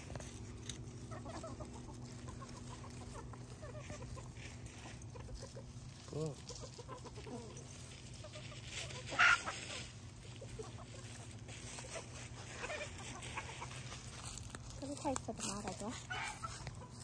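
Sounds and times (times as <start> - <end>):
chickens clucking: 0.0 - 17.0
chicken rising and falling call: 8.4 - 10.0.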